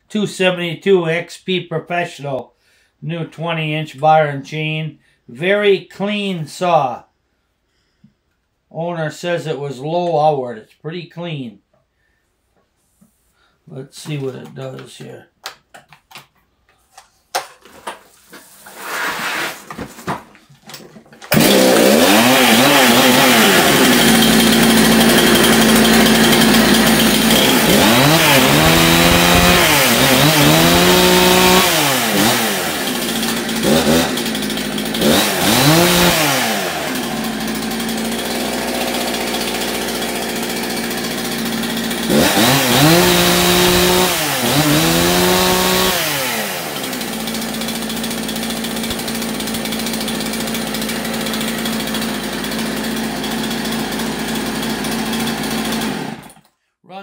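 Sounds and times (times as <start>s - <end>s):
chainsaw revving: 21.3s - 56.5s.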